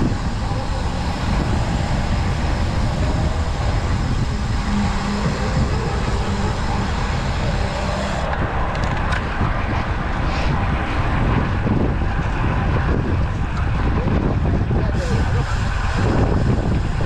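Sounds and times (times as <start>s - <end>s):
bike tyres rolling on asphalt: 0.0s - 17.0s
wind rushing over microphone: 0.0s - 17.0s.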